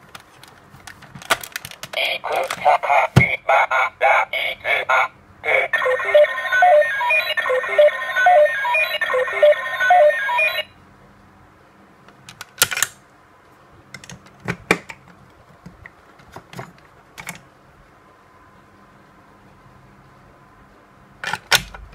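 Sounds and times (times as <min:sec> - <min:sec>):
toy electronic beeping chimes: 0:05.8 - 0:10.6.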